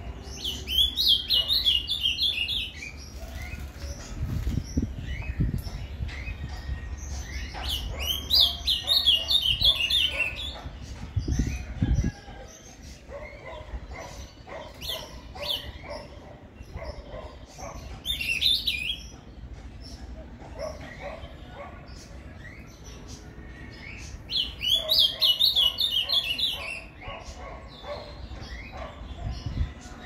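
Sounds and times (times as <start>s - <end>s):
bird chirping: 0.0s - 30.0s
bird warbled song: 0.0s - 30.0s.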